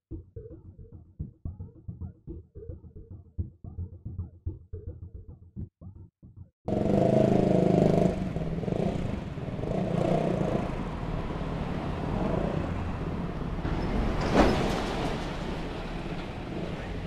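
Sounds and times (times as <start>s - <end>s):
motorcycle engine running: 6.7s - 11.2s
large vehicle passing: 6.7s - 17.0s
traffic rumble: 6.7s - 17.0s.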